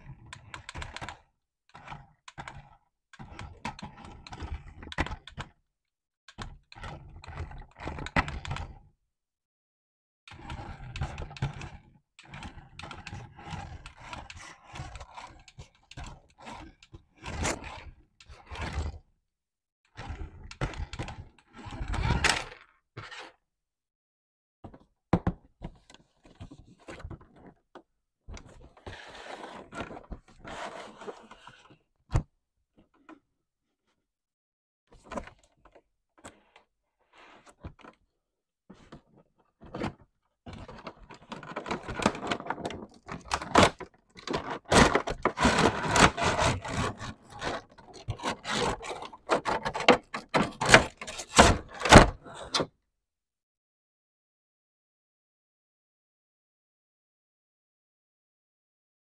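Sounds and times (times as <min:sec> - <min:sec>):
scraping and rustling packaging: 0:40.8 - 0:52.2.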